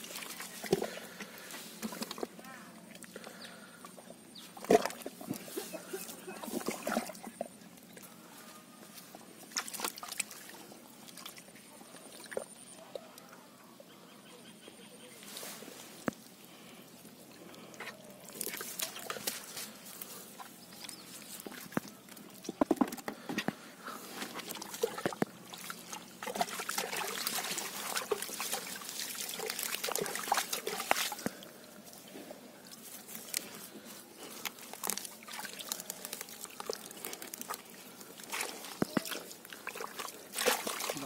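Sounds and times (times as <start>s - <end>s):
wet mud squelching: 4.4s - 8.2s, 9.4s - 12.5s, 17.4s - 41.0s
water sloshing: 4.6s - 8.2s, 9.4s - 13.0s, 24.0s - 41.0s.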